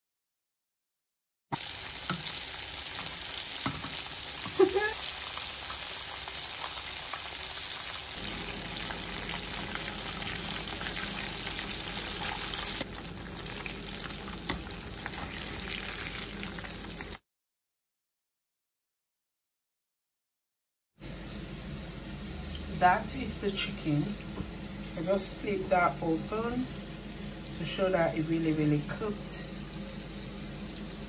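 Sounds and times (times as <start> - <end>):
oil sizzling with pops: 1.5 - 17.2.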